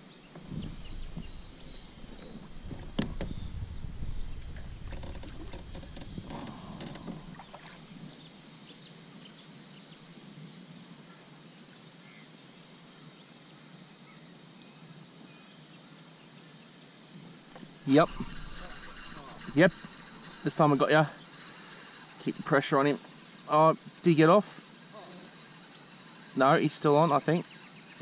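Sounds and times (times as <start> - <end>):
faint steady hiss: 0.0 - 28.0
gear knocking on kayak: 0.4 - 7.7.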